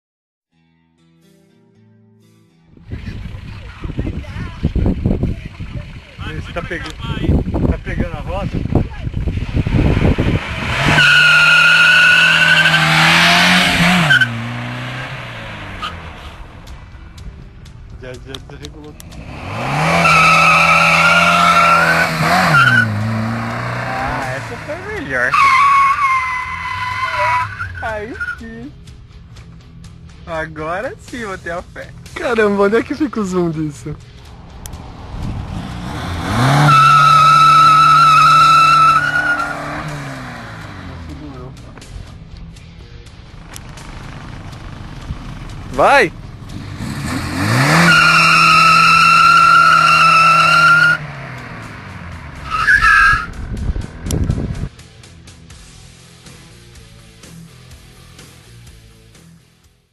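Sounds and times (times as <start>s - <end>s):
car engine revving high: 9.3s - 16.6s, 19.0s - 27.9s, 34.5s - 41.5s, 46.4s - 54.6s
tyres squealing: 10.8s - 15.2s, 19.4s - 28.4s, 35.8s - 40.6s, 47.4s - 51.1s, 52.4s - 53.3s.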